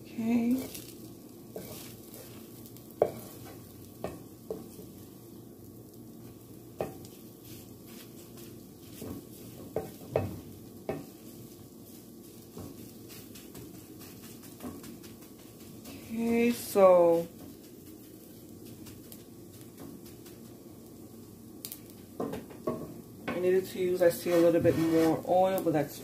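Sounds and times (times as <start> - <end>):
faint egg sizzle: 0.0 - 26.0
spatula scraping and knocking pan: 0.6 - 5.2, 6.2 - 20.6, 22.2 - 25.4.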